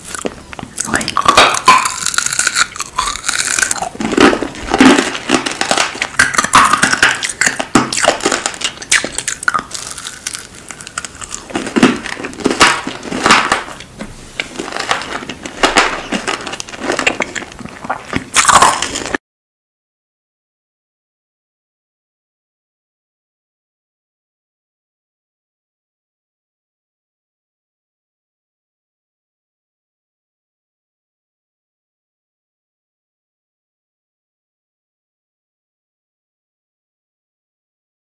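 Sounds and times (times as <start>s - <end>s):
mouth sucking and crunching lollipop: 0.0s - 19.2s.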